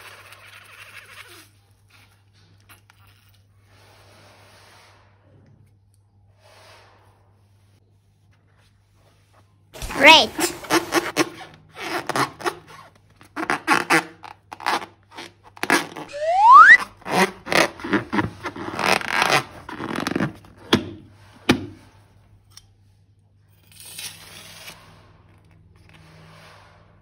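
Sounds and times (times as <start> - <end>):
short rising squeak: 16.1 - 16.8.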